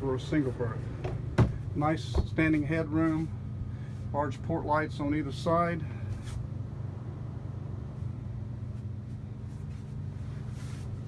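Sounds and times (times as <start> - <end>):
low mechanical hum: 0.0 - 11.0
soft rustle: 8.0 - 11.0.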